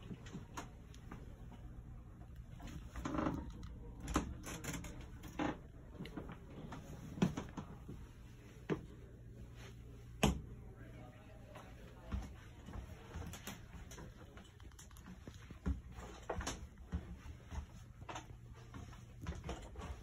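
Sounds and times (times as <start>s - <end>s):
footsteps on bus floor: 11.6s - 20.0s.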